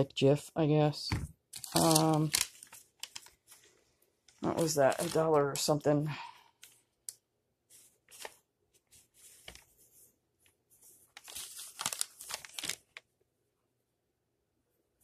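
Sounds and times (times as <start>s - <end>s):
packaging crinkling and rustling: 1.6s - 3.7s, 4.4s - 5.8s, 8.0s - 8.4s, 11.1s - 13.1s.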